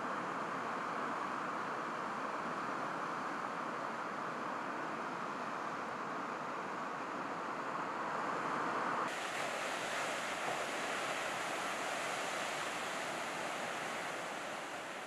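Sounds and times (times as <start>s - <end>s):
ocean surf breaking: 9.1s - 15.0s.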